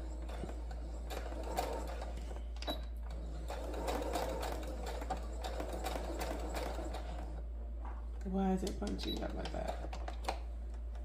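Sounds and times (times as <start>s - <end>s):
sewing machine stitching: 0.0s - 7.5s.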